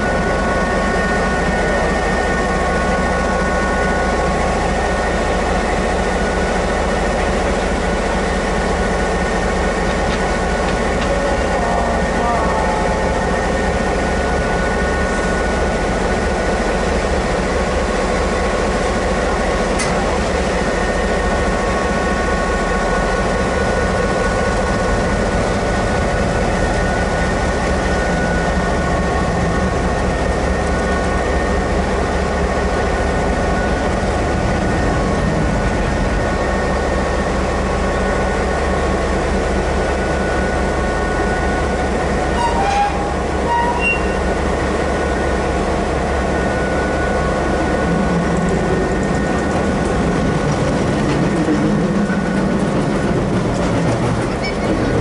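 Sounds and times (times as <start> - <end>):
diesel locomotive idling: 0.0 - 55.0
steady whine: 0.0 - 55.0
short squeal: 42.3 - 44.3.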